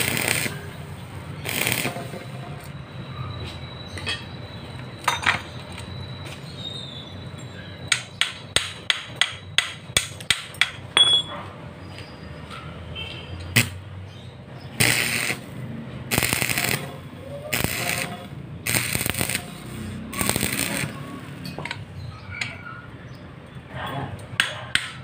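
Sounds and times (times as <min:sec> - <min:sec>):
welding arc crackling: 0:00.0 - 0:02.8, 0:13.5 - 0:13.8, 0:14.7 - 0:21.8.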